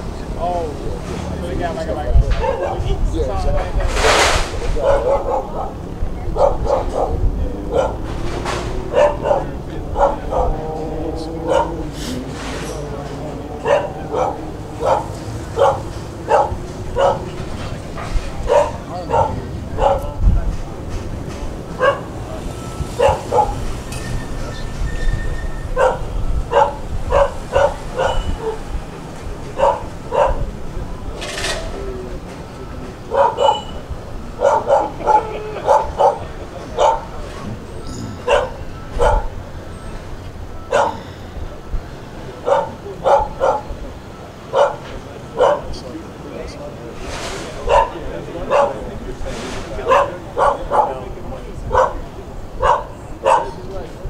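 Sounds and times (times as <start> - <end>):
steady background noise: 0.0 - 54.0
dog barking: 2.3 - 3.0, 4.7 - 10.8, 11.4 - 12.3, 13.5 - 17.4, 18.4 - 20.2, 21.7 - 22.2, 23.0 - 23.7, 25.7 - 28.6, 29.5 - 30.5, 33.0 - 37.2, 38.2 - 39.4, 40.6 - 41.1, 42.4 - 43.8, 44.4 - 45.8, 47.6 - 49.0, 49.8 - 51.0, 51.6 - 53.7.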